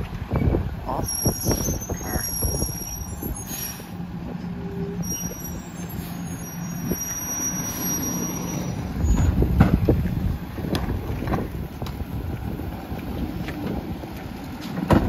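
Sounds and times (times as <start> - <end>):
garbage truck diesel engine: 0.0 - 15.0
short squeal: 1.0 - 3.9, 4.6 - 9.4.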